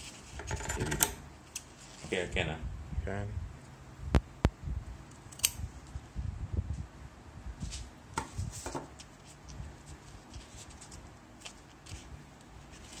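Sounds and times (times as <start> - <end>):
fabric shears snipping: 5.3 - 5.6.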